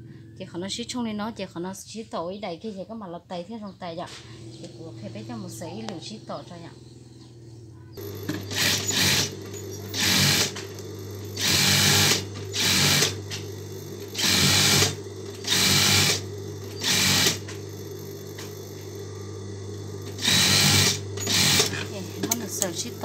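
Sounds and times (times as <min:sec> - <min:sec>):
steady motor hum: 0:04.1 - 0:23.0
sewing machine stitching: 0:08.0 - 0:18.8, 0:20.0 - 0:23.0.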